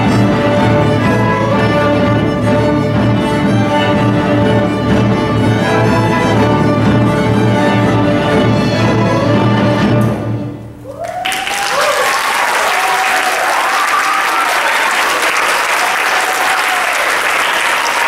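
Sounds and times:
audience applause: 10.9s - 18.0s.

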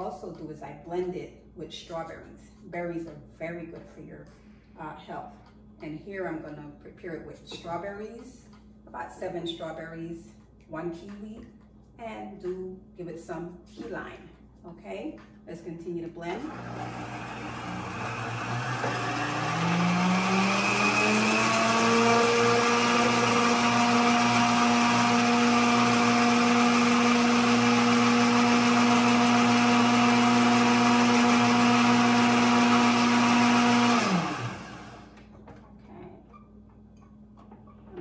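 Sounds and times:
blender motor running: 16.4s - 35.2s.

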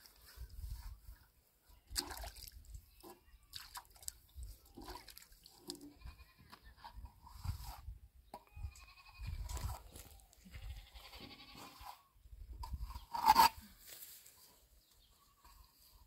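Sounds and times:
goats bleating: 10.5s - 11.8s.

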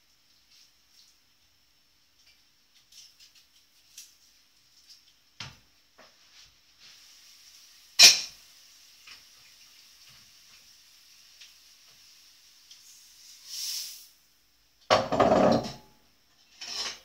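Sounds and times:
pan sizzling: 0.0s - 15.8s
cookware clatter: 8.0s - 8.4s, 14.9s - 17.0s
knock: 14.9s - 15.8s.

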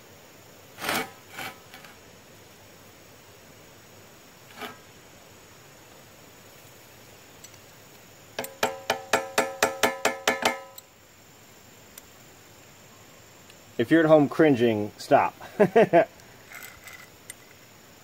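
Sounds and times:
metallic clinks of clamp on beam: 8.4s - 10.9s.

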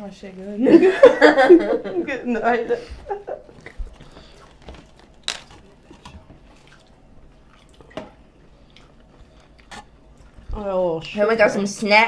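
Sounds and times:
quiet chewing: 3.4s - 11.2s.

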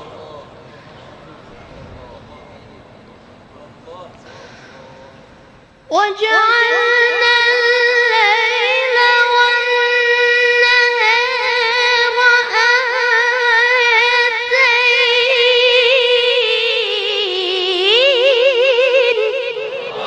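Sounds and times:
boy chanting recitation: 5.9s - 20.0s.

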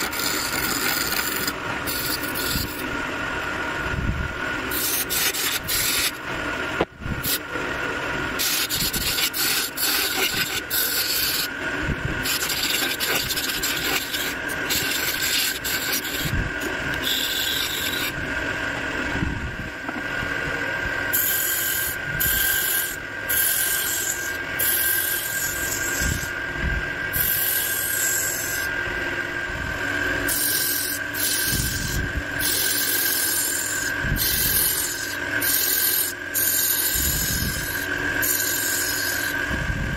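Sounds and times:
turning tool scraping wood: 0.0s - 2.9s, 4.6s - 6.2s, 8.3s - 11.6s, 12.2s - 18.2s, 21.1s - 26.4s, 27.1s - 28.8s, 30.2s - 39.5s
wood lathe whine: 0.0s - 39.9s.

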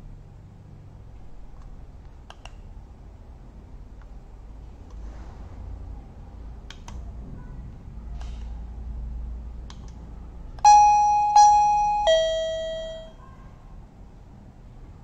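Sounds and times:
three-note doorbell chime: 10.7s - 13.2s.

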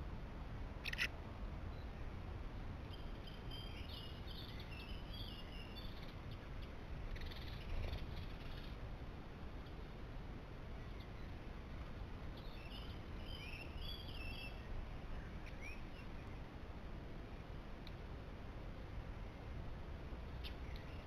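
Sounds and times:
low outdoor rumble: 0.0s - 21.0s
songbird twittering: 0.8s - 1.1s, 2.9s - 6.4s, 7.1s - 8.8s, 12.4s - 16.5s, 20.4s - 21.0s.

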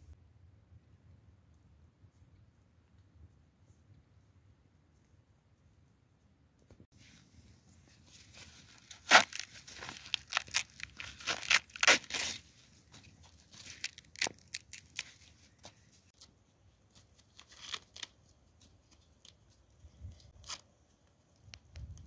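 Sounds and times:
corn husks rustling and ripping: 8.1s - 22.0s.

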